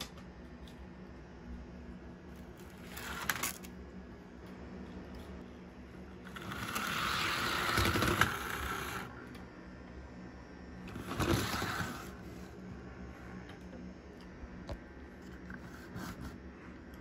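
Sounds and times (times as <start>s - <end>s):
steady low hum: 0.0s - 17.0s
model train motor whirring: 6.2s - 9.2s.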